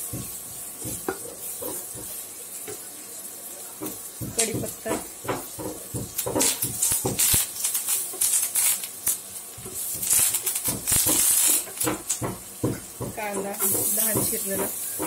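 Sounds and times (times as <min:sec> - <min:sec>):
spices sizzling in butter: 0:00.0 - 0:15.0.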